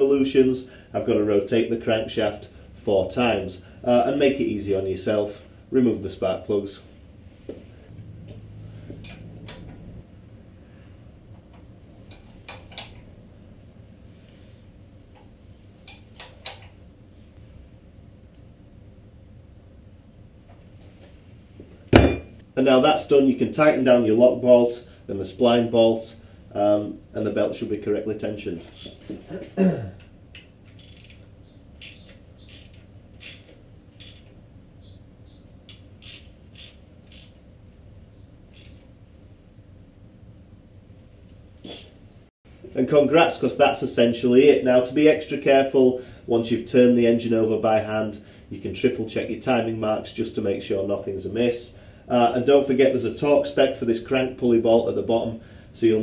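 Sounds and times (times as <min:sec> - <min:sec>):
wrench clicks: 0:30.7 - 0:31.2, 0:31.8 - 0:34.3, 0:35.7 - 0:37.4, 0:38.5 - 0:38.8.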